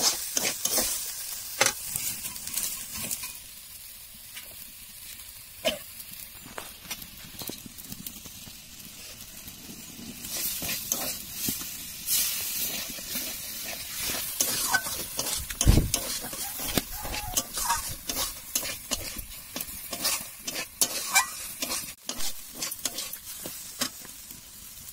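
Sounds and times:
metal spatula scraping pan: 0:00.0 - 0:03.4, 0:10.2 - 0:24.1
food sizzling in pan: 0:00.0 - 0:24.9.

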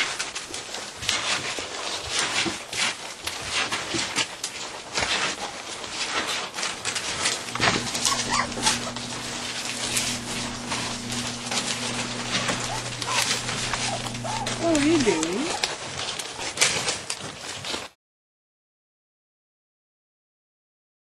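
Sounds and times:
steady low hum: 0:07.0 - 0:15.6
puppy whimpers: 0:07.5 - 0:15.7.

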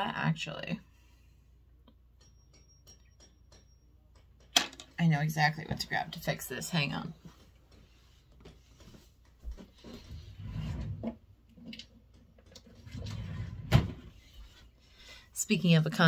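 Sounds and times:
knocks and rustling handling noise: 0:06.8 - 0:13.1.

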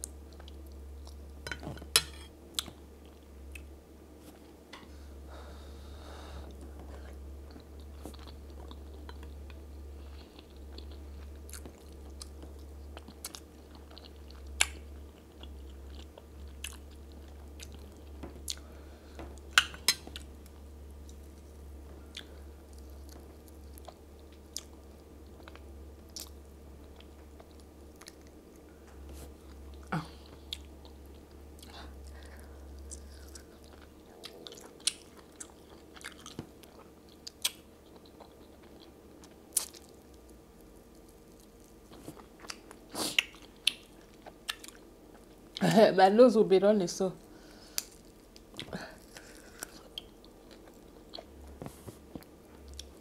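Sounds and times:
low hum: 0:00.0 - 0:42.9
person chewing: 0:06.4 - 0:18.7, 0:22.1 - 0:40.0, 0:40.9 - 0:45.6, 0:47.4 - 0:53.0.

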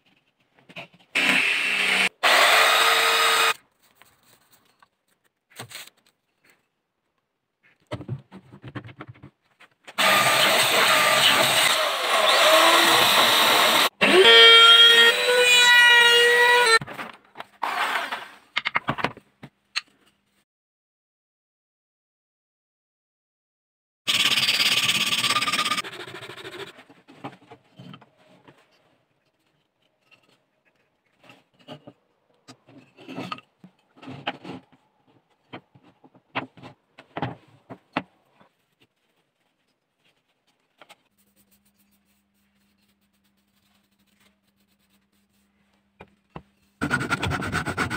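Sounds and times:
wooden parts knocking and scraping: 0:07.6 - 0:09.9, 0:16.8 - 0:20.0, 0:26.8 - 0:38.6
wood rasp scraping wood: 0:46.8 - 0:47.9.

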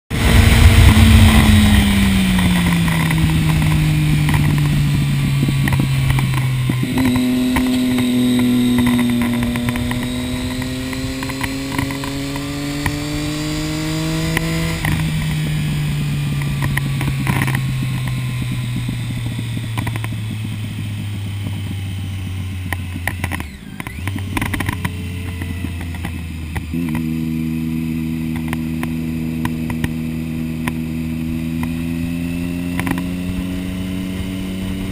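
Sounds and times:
wind rush: 0:00.1 - 0:19.0
motorcycle engine: 0:00.1 - 0:34.9.

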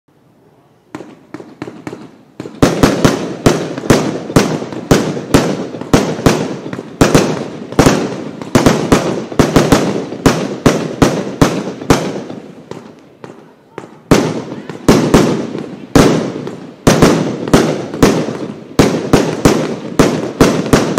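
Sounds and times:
firework cake bangs: 0:00.9 - 0:20.9.

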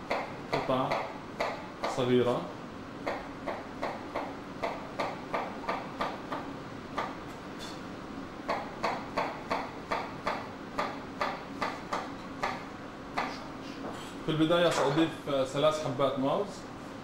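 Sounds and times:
knife chopping on board: 0:00.1 - 0:02.0, 0:03.0 - 0:07.2, 0:08.5 - 0:12.6.

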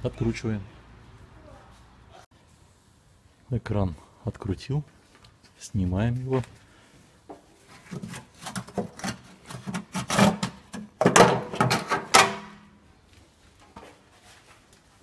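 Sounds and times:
sheet metal scraping and clattering: 0:07.9 - 0:12.6.

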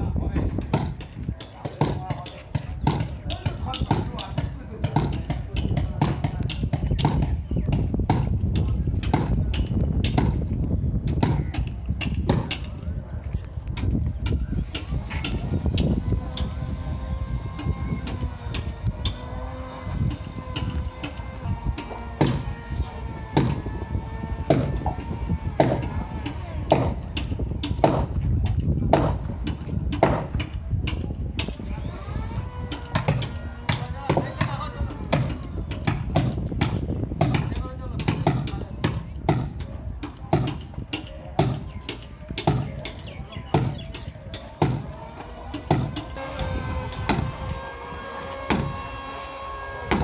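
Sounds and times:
hammer striking wooden hull: 0:21.8 - 0:22.5, 0:40.3 - 0:40.6, 0:44.6 - 0:44.9, 0:45.6 - 0:46.0, 0:47.1 - 0:47.3, 0:48.5 - 0:48.7.

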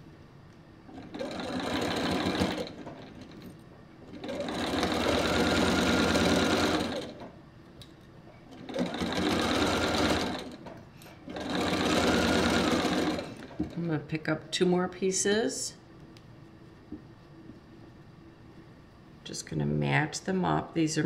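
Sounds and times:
sewing machine stitching: 0:00.9 - 0:03.5, 0:04.1 - 0:07.3, 0:08.5 - 0:13.8.

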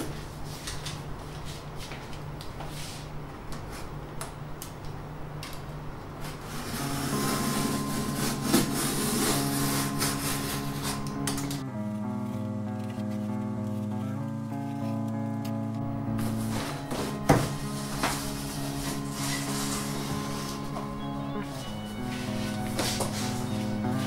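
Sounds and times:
cardboard box rubbing and scraping: 0:06.4 - 0:11.0, 0:16.2 - 0:20.8
background music with held notes: 0:06.4 - 0:24.0.

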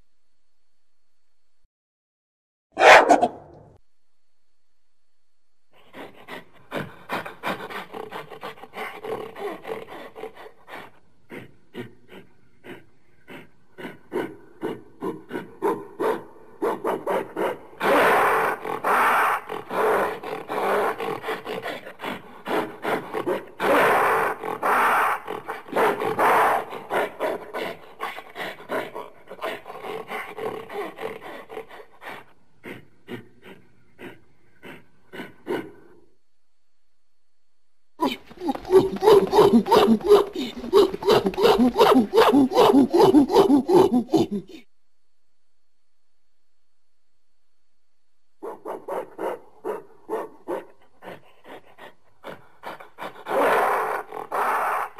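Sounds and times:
gorilla pulsed calls: 0:38.0 - 0:44.6.

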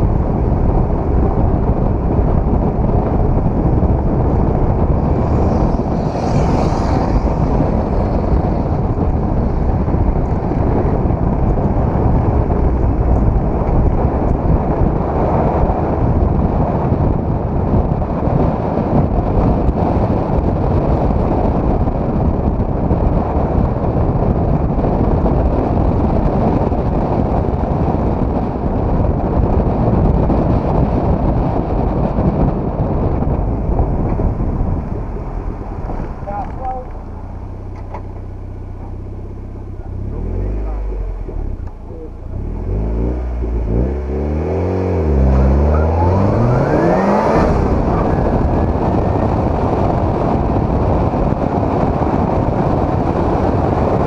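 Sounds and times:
car engine running: 0:00.0 - 0:17.3, 0:31.8 - 0:54.0
wind buffeting microphone: 0:00.0 - 0:54.0.

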